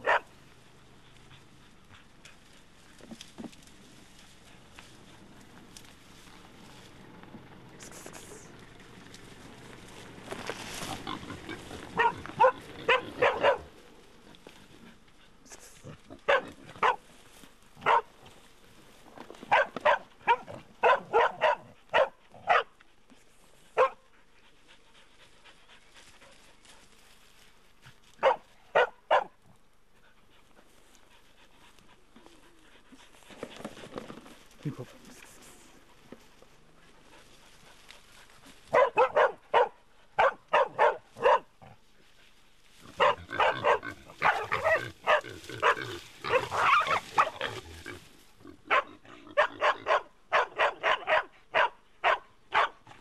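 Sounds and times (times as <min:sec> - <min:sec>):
dogs barking in short bursts: 0:00.0 - 0:00.4, 0:10.9 - 0:13.8, 0:15.5 - 0:17.1, 0:17.8 - 0:18.2, 0:19.4 - 0:22.8, 0:23.7 - 0:24.1, 0:28.2 - 0:29.5, 0:38.5 - 0:41.8, 0:42.8 - 0:48.0, 0:48.6 - 0:53.0.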